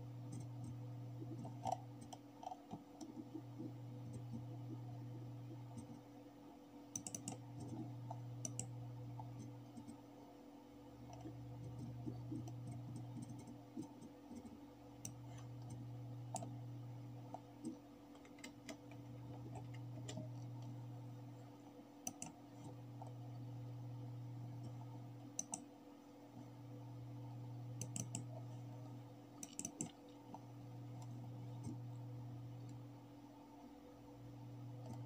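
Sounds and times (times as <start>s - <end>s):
low hum: 0.0s - 35.0s
computer mouse button clicking: 8.4s - 8.7s, 27.8s - 28.3s.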